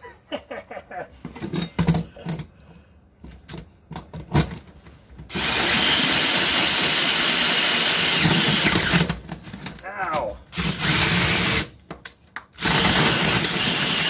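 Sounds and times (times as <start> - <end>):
drill cutting with hole saw: 5.3 - 9.2, 10.5 - 11.7, 12.6 - 14.0.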